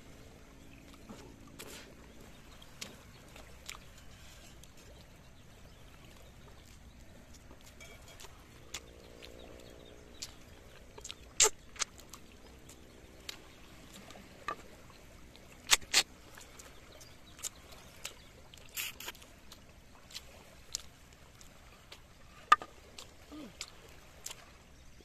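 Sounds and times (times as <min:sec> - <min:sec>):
people eating by hand: 0:22.9 - 0:23.8.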